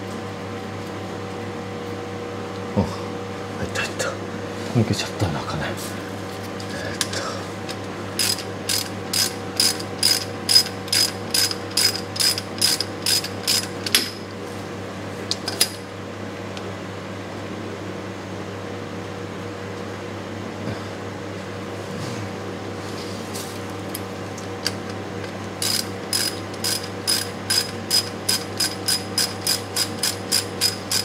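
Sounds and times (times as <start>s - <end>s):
ratchet wrench clicking: 8.2s - 14.0s, 25.6s - 31.0s.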